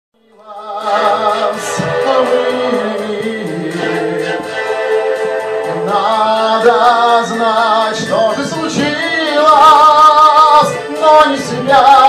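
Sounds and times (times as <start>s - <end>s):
man singing into microphone: 0.2s - 4.6s, 5.7s - 12.0s
karaoke backing track: 0.2s - 12.0s.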